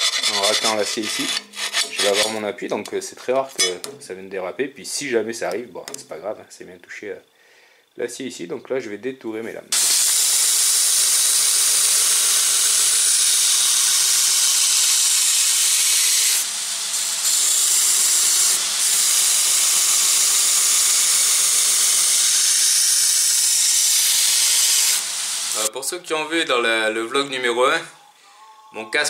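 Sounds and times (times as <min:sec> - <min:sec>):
belt grinder grinding steel: 0:00.0 - 0:02.5, 0:09.7 - 0:25.7.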